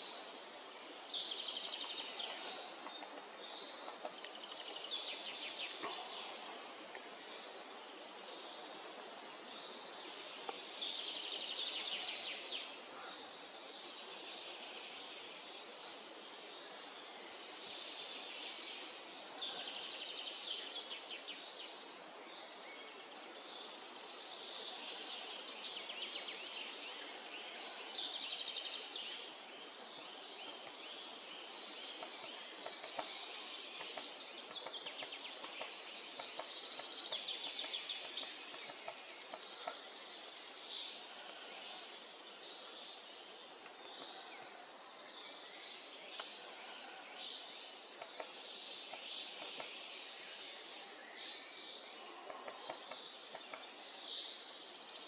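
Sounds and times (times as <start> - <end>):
songbirds singing: 0.0 - 55.0
steady background hiss: 0.0 - 55.0.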